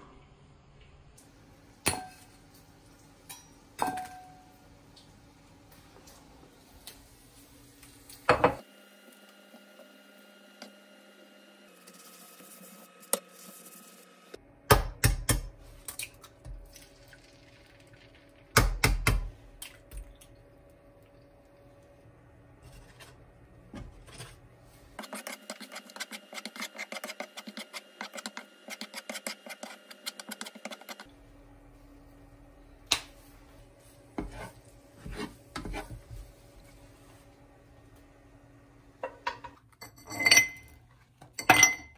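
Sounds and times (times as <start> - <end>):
spatula scraping pan: 22.6 - 23.2, 25.0 - 31.1, 34.2 - 36.1.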